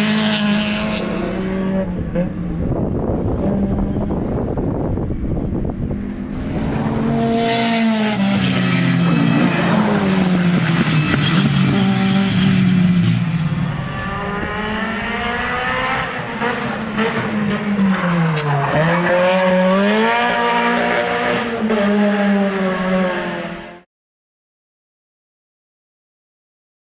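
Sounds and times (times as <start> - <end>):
rally car engine revving hard: 0.0 - 2.4, 6.3 - 13.2, 13.8 - 23.8.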